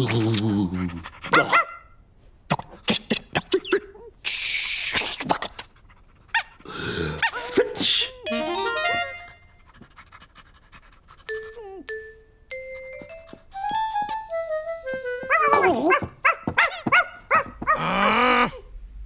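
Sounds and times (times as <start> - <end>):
cartoon dog yapping and whimpering: 7.2 - 8.8, 15.2 - 18.7
music: 8.2 - 9.5, 11.3 - 15.9.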